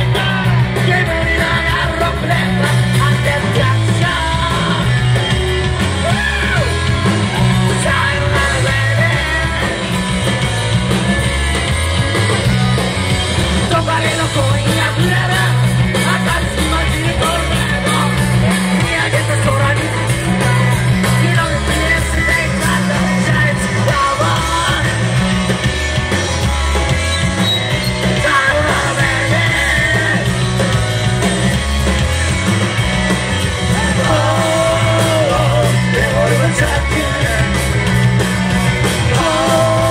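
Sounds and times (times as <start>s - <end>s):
person singing: 0.0s - 5.2s, 5.9s - 10.0s, 28.0s - 30.4s, 33.6s - 37.8s, 39.1s - 39.9s
drum kit: 0.0s - 39.9s
electric guitar: 0.0s - 39.9s
heavy pulsing bass: 0.0s - 39.9s.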